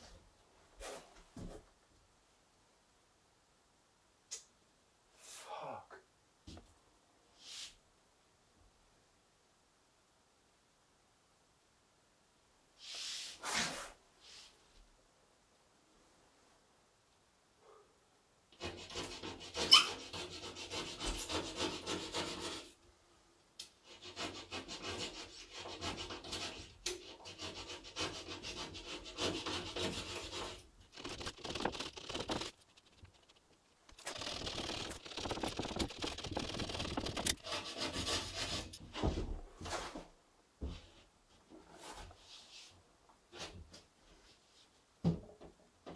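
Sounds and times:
plasterboard edge rasping: 0:18.6 - 0:22.8, 0:23.8 - 0:38.9.

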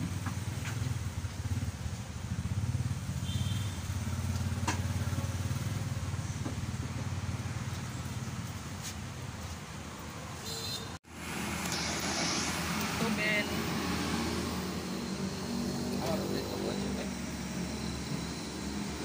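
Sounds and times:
auto-rickshaw engine drone: 0:00.0 - 0:10.3, 0:11.0 - 0:19.0.

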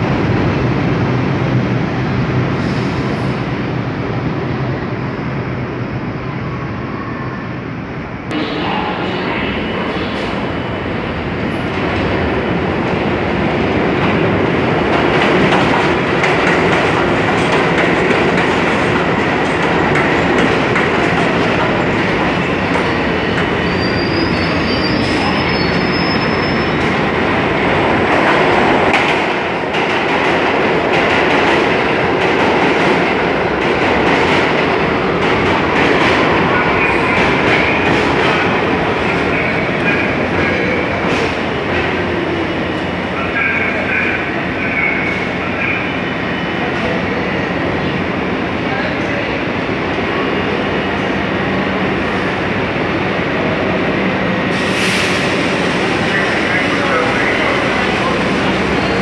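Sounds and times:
subway train rumbling on rails: 0:00.0 - 0:59.0
high wheel squeal: 0:23.0 - 0:27.0.

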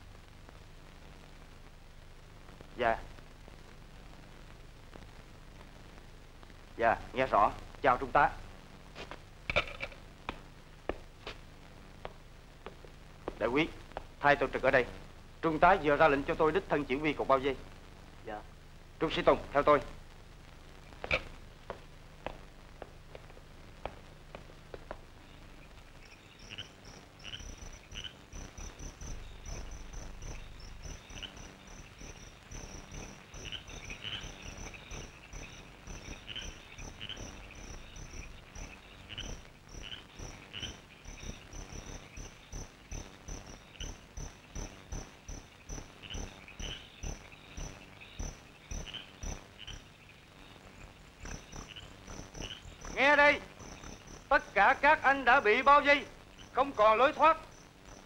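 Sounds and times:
irregular insect calls: 0:00.0 - 0:58.0
crickets chirping: 0:07.2 - 0:20.0, 0:20.8 - 0:58.0
soft low thumps: 0:08.4 - 0:15.4, 0:19.8 - 0:26.0, 0:27.5 - 0:49.5.

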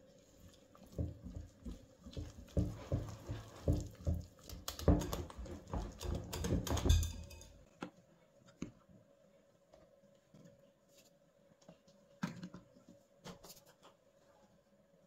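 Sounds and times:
spatula tapping glass bowl: 0:04.7 - 0:07.6.

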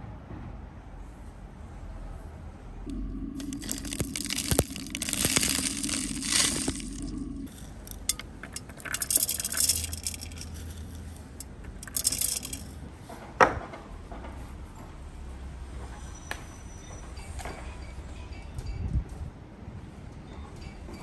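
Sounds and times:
seasoning crumbled between fingers: 0:02.9 - 0:11.1
food handled in crisp bursts: 0:03.4 - 0:12.7.

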